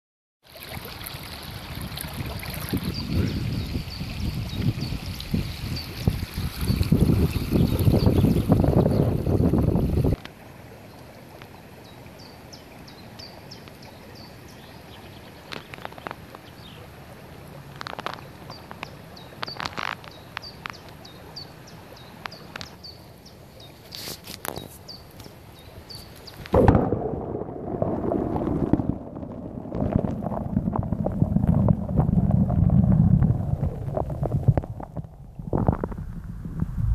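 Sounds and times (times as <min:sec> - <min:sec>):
stream murmuring: 0:00.4 - 0:36.3
wind buffeting microphone: 0:01.7 - 0:10.2, 0:26.5 - 0:36.9
underwater rumbling and sloshing: 0:26.4 - 0:36.9.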